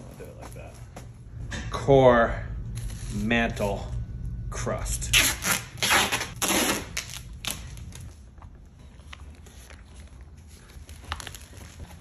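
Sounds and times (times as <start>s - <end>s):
duct tape ripping off roll: 5.1s - 7.8s.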